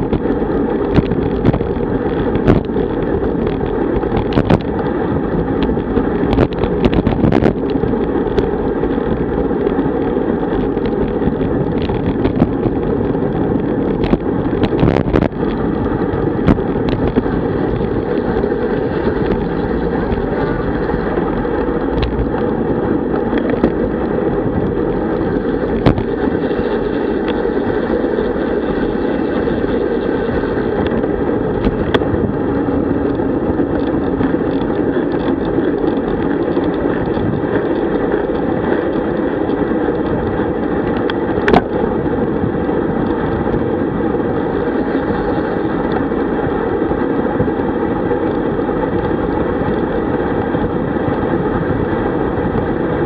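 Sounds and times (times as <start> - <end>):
tyre noise on asphalt: 0.0 - 53.0
wind rushing over microphone: 0.0 - 53.0.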